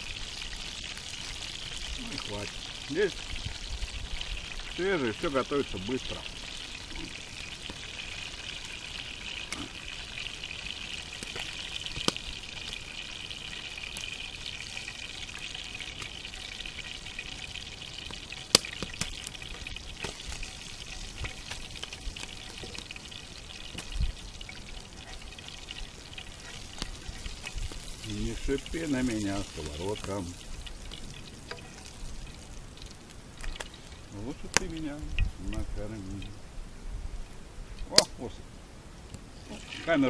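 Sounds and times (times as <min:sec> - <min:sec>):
fish frying in oil: 0:00.0 - 0:36.5, 0:37.7 - 0:38.3, 0:39.0 - 0:40.0
sharp oil pops: 0:11.2 - 0:12.3, 0:18.5 - 0:20.4, 0:37.8 - 0:38.2.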